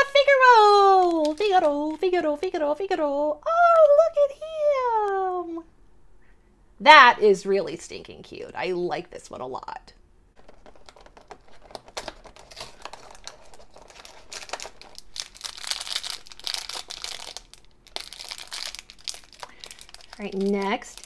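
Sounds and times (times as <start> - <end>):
foil bag crinkling: 10.4 - 21.0.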